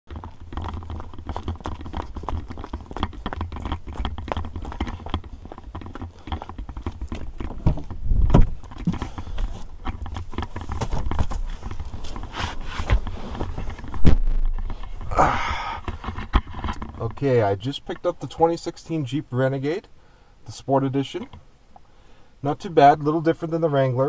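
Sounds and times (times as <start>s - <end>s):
thump: 7.6s - 9.0s
low rumble: 8.0s - 8.7s.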